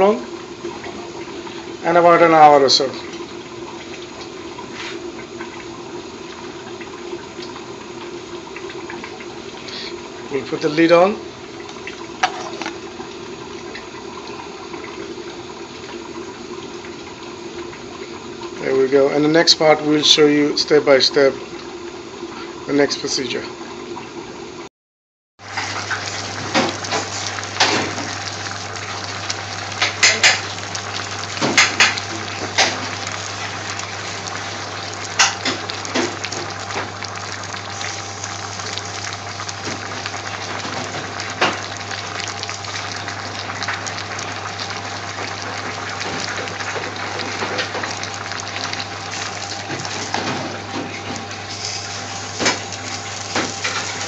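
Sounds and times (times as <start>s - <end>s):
pot bubbling: 0.0s - 24.6s, 25.4s - 54.0s
pots and utensils clinking: 12.2s - 12.8s, 29.7s - 30.6s, 31.4s - 33.0s, 35.2s - 36.2s.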